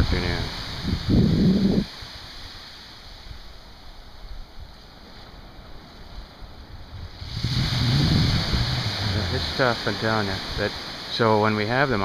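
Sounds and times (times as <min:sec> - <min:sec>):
surf on sandy beach: 0:00.0 - 0:12.0
wind rumbling on microphone: 0:00.0 - 0:12.0.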